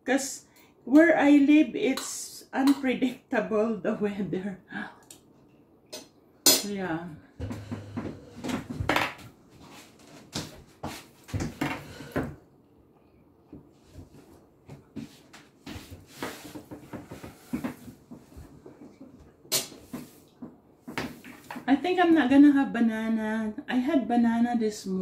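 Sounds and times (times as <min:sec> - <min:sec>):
knocks and bumps in kitchen: 0:07.4 - 0:09.4, 0:10.2 - 0:12.4.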